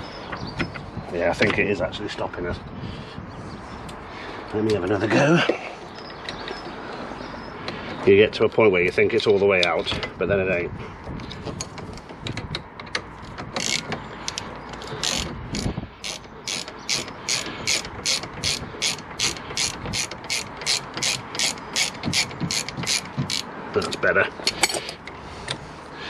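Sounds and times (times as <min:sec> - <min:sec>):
ratchet clicking: 0:11.6 - 0:25.2.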